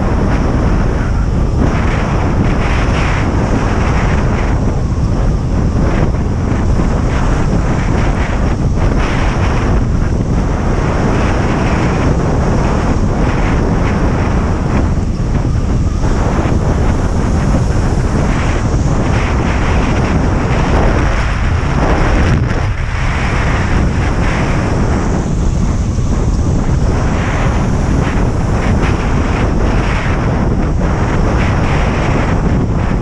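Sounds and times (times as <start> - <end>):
wind buffeting microphone: 0.0 - 33.0.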